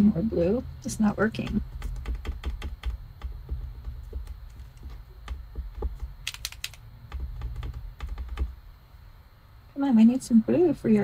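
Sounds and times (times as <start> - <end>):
marker nib clicking: 5.9 - 8.4.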